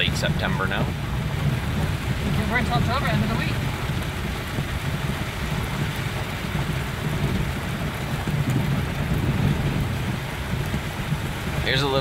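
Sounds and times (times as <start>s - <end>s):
heavy rain on windshield and roof: 0.0s - 12.0s
truck driving rumble: 0.0s - 12.0s.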